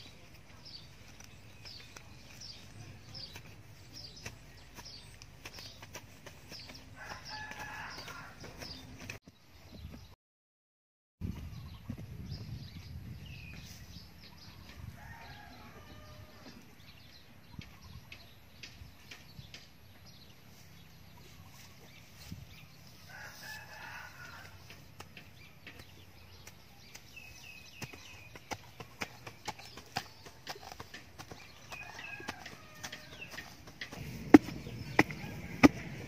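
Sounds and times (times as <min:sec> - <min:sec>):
digging sticks knocking in soil: 0:00.0 - 0:09.2, 0:24.2 - 0:36.0
rooster crowing: 0:07.0 - 0:08.4, 0:15.0 - 0:16.5, 0:23.1 - 0:24.6, 0:31.8 - 0:33.2, 0:34.9 - 0:36.0.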